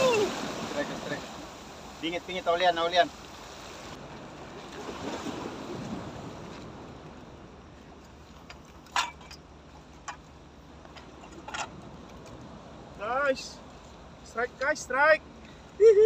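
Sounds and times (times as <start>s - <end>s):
waves washing against rocks: 0.0s - 7.1s
wind: 0.0s - 16.0s.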